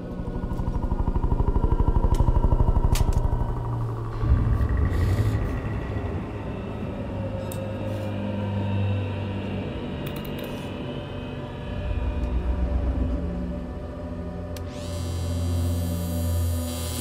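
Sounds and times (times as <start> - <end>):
low rumbling drone: 0.0 - 17.0.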